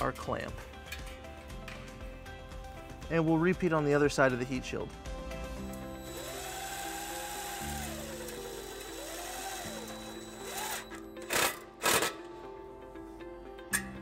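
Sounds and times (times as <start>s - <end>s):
cordless drill motor whine: 5.6s - 11.5s.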